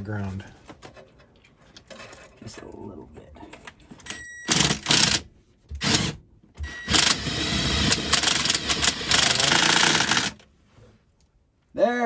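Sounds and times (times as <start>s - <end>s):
cordless drill driving a screw: 4.5s - 5.2s, 5.8s - 10.4s.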